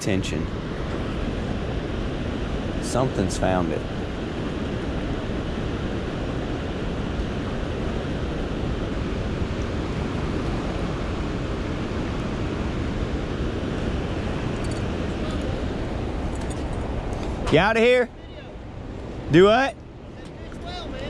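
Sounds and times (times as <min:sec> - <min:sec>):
river water rushing: 0:00.0 - 0:21.0.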